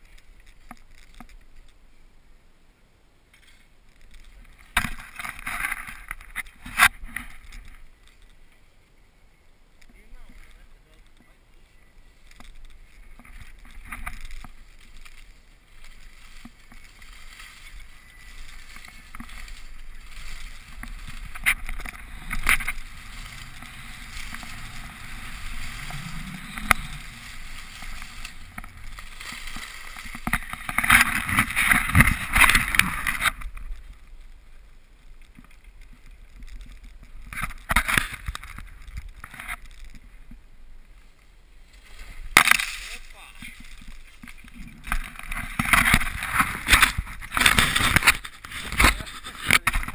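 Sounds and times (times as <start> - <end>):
skis scraping over snow: 11.6 - 40.0, 40.9 - 49.9
wind rushing over microphone: 17.8 - 34.0.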